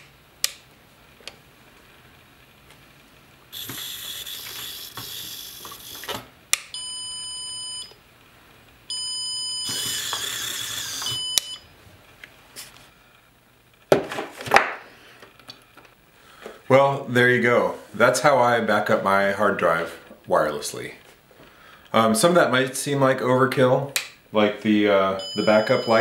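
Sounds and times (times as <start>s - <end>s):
toy car motor whirring: 3.5s - 6.3s, 9.6s - 11.4s
reverse warning buzzer beeping: 3.5s - 8.0s, 8.9s - 11.7s, 25.2s - 26.0s.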